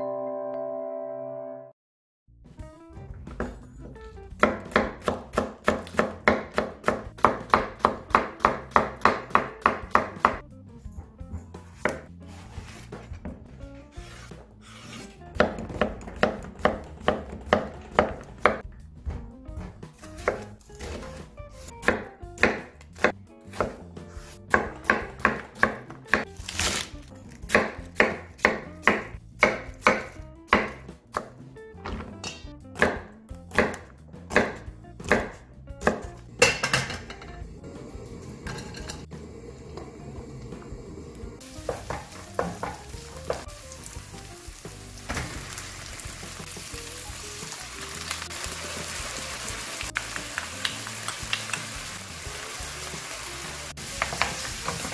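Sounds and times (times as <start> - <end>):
knife chopping on wooden board: 4.4 - 10.4, 11.6 - 13.4, 14.0 - 18.6, 19.6 - 26.8, 27.4 - 37.0, 41.6 - 43.5.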